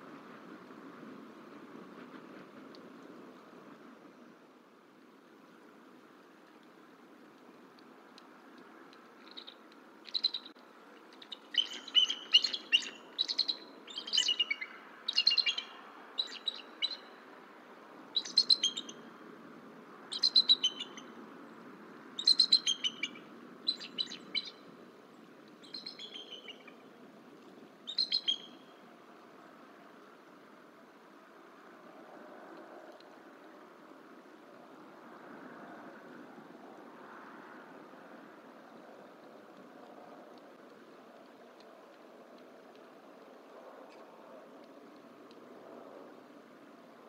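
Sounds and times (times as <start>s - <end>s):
eagles chittering calls: 11.3s - 17.0s.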